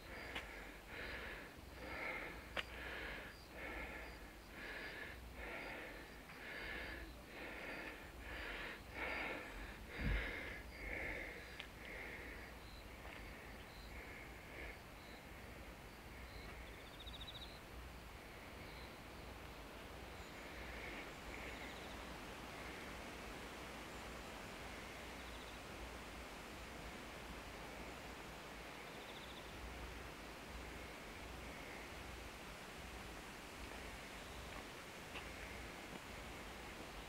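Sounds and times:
footsteps walking: 13.0 - 13.3, 34.5 - 36.1.

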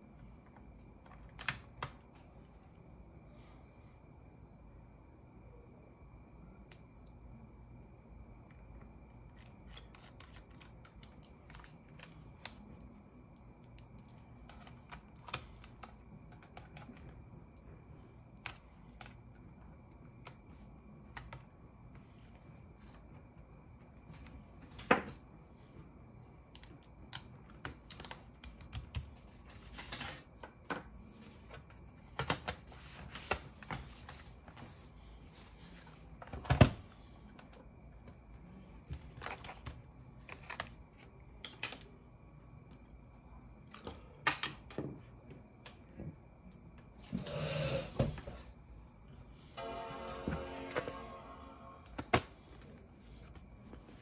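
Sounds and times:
faint high whine: 49.3 - 54.0.

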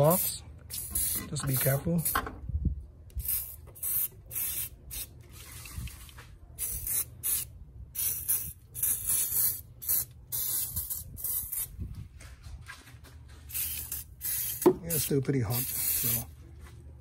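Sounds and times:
spray bottle hissing bursts: 0.1 - 1.4, 3.2 - 6.0, 6.6 - 11.7, 13.5 - 16.2.

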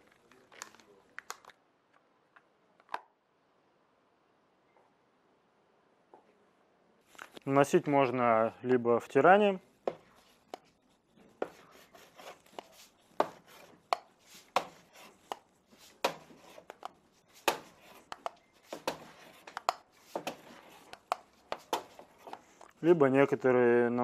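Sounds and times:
sharp knocks and scrapes: 9.8 - 22.8
wax block rubbing on ski: 10.1 - 22.8.

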